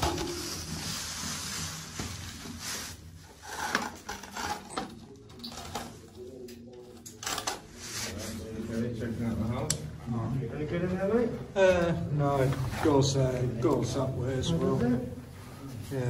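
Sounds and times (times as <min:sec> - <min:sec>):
scraping and rustling: 0:00.0 - 0:06.1.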